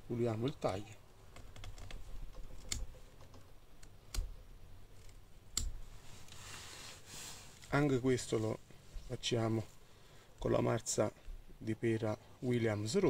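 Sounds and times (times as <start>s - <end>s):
sharp clicks: 1.3s - 4.4s, 5.0s - 5.8s.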